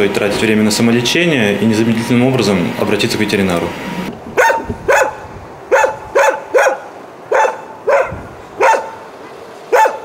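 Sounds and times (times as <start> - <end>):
dog barking: 4.4 - 9.1, 9.7 - 10.0.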